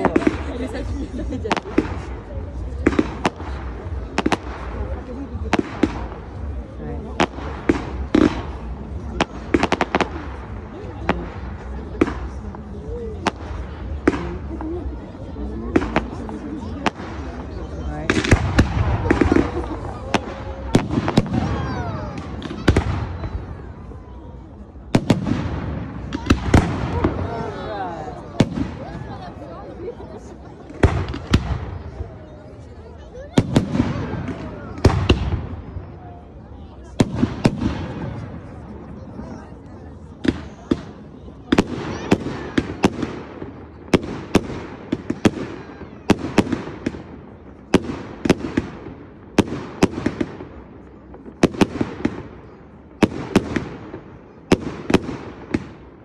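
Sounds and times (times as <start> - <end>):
small firework pops: 0.0 - 0.6, 1.4 - 6.4, 9.2 - 12.6, 13.2 - 14.6, 15.7 - 17.3, 18.1 - 23.4, 24.9 - 27.3, 28.4 - 29.1, 30.6 - 32.0, 33.4 - 35.8, 36.9 - 38.4, 40.2 - 55.9
fireworks bursting with sharp bangs: 0.0 - 56.0.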